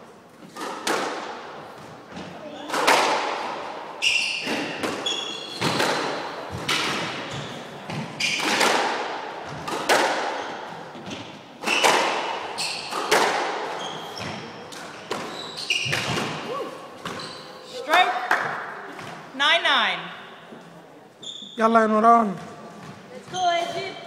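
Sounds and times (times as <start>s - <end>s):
racket hitting ball: 0.5s - 3.8s, 4.4s - 17.2s
shoes squeaking on wooden floor: 4.0s - 8.6s, 10.4s - 18.0s, 20.5s - 24.0s.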